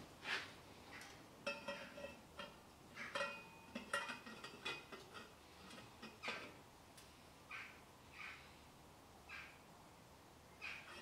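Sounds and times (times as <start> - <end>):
metal pipes knocking and clinking: 1.4 - 6.6.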